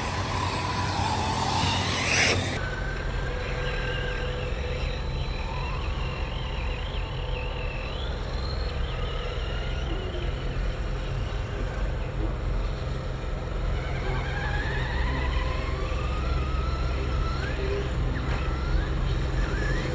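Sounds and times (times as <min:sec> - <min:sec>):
electric motor whining: 0:00.0 - 0:04.8, 0:12.6 - 0:19.9.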